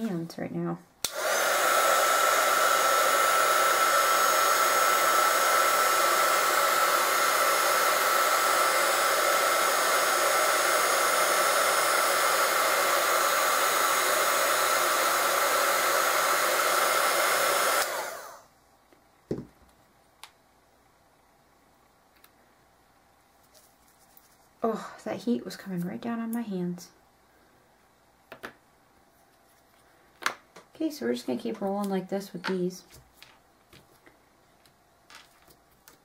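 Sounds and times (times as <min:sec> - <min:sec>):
heat gun blowing with high whine: 0:01.0 - 0:18.5.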